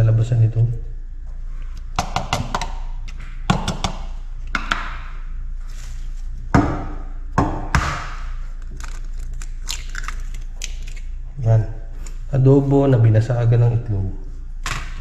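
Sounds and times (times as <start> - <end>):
egg cracked against plate: 8.8 - 11.1.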